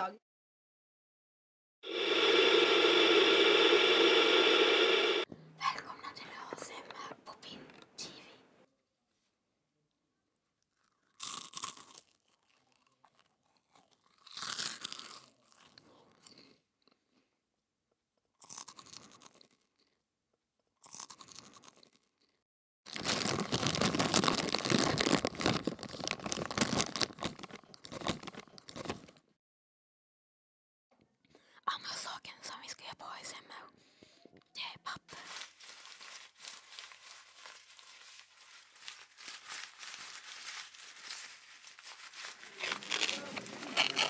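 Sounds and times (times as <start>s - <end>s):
crunchy snack chewing: 10.6s - 17.0s, 18.2s - 20.0s, 20.8s - 29.3s, 40.9s - 44.0s.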